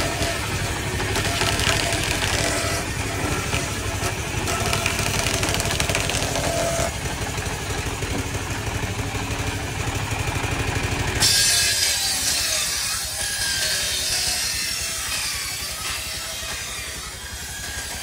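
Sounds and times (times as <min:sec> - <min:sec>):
circular saw droning: 0:00.0 - 0:18.0
saw hissing through log: 0:11.2 - 0:18.0.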